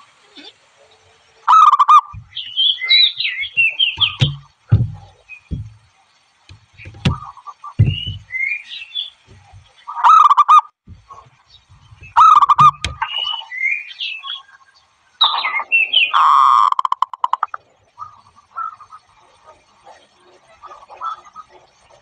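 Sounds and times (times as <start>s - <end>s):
low thumps: 2.1s - 2.4s, 4.0s - 8.4s, 9.2s - 9.8s, 10.9s - 13.2s
dove cooing: 9.3s - 13.3s.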